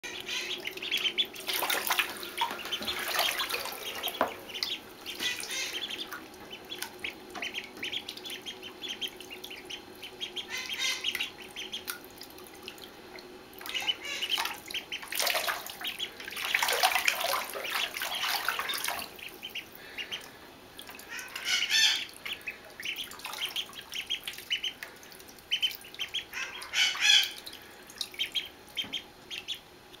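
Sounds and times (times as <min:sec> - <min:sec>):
ducklings peeping: 0:00.0 - 0:30.0
water splashing: 0:00.1 - 0:29.5.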